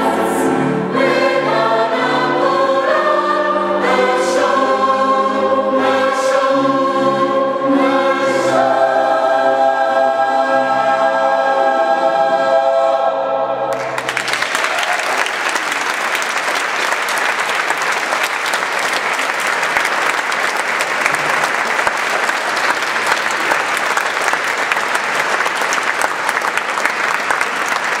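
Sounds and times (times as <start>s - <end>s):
choir holding a chord: 0.0s - 14.1s
audience applause: 13.7s - 28.0s.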